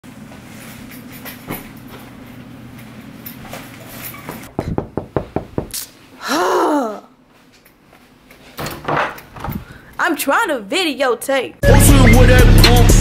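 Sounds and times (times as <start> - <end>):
sharp knocks: 4.5 - 5.8.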